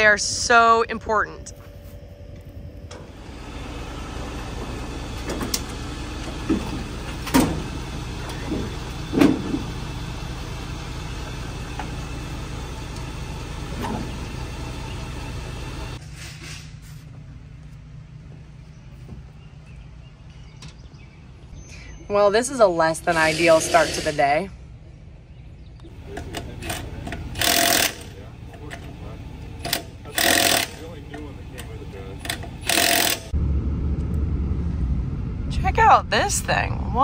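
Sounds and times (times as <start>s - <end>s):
vehicle engine running: 0.0s - 16.0s, 24.6s - 37.0s.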